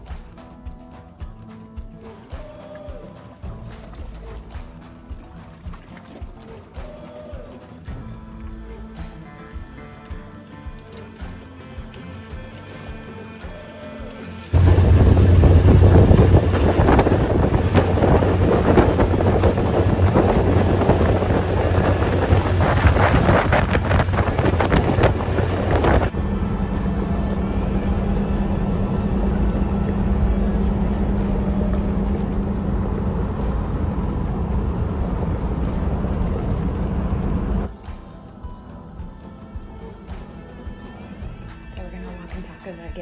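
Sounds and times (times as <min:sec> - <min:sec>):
outboard motor drone: 0:10.0 - 0:37.7
low hum: 0:14.5 - 0:37.7
wind buffeting microphone: 0:14.5 - 0:37.7.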